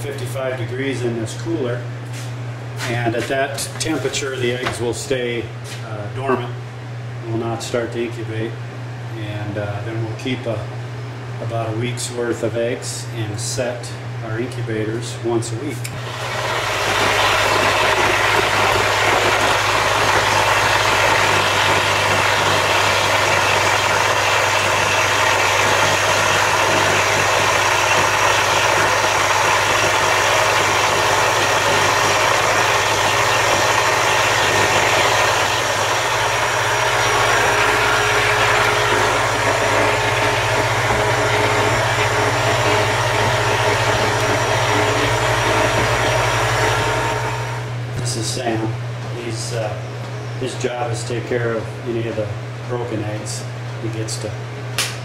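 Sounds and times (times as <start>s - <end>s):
motor hum: 0.0s - 55.0s
water churning and bubbling: 16.0s - 47.9s.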